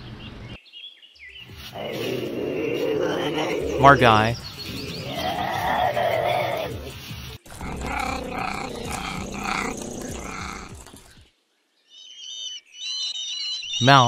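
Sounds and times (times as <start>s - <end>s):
wild cat calling: 1.7s - 11.2s.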